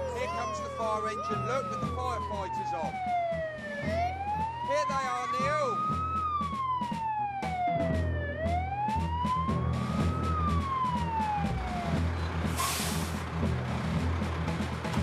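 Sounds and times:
fire engine siren wailing: 0:00.0 - 0:14.8
short hiss: 0:12.6 - 0:13.2.

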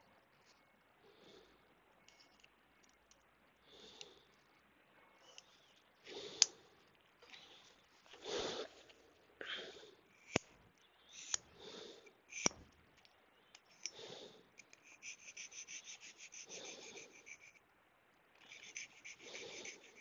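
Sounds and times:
person breathing and sniffing: 0:13.7 - 0:17.6, 0:18.5 - 0:20.0.

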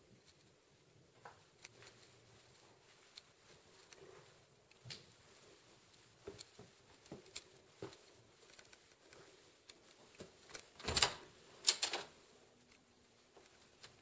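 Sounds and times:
footsteps taps: 0:06.2 - 0:08.2.

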